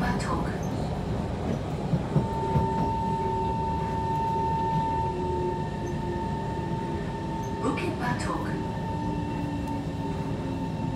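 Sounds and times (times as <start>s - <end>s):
train rumbling on track: 0.0s - 10.9s.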